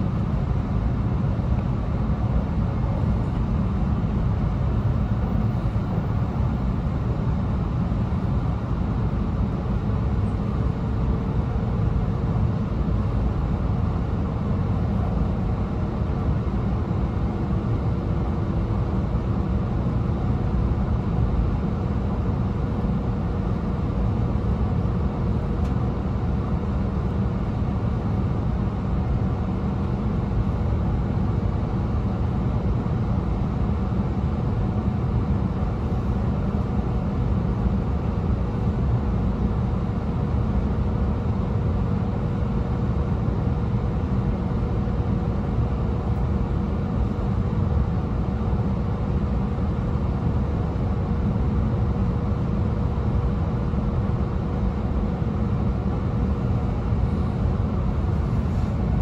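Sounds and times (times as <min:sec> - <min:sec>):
train interior rumble: 0:54.0 - 0:59.0.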